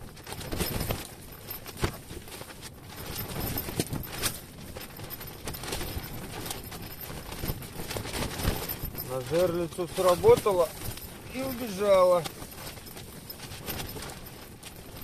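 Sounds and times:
tent fabric flapping and rustling: 0.0 - 15.0.

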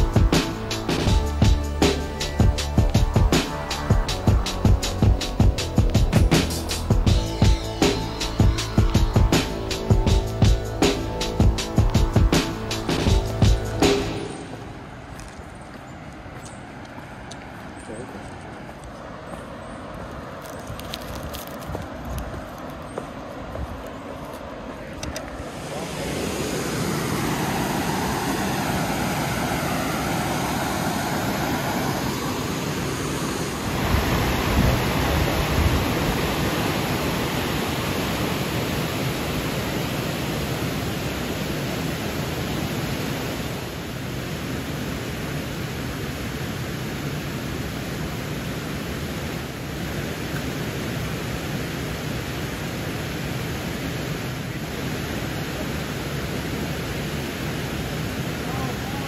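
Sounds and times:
river water rushing: 0.0 - 59.0
wind buffeting microphone: 33.4 - 37.5.

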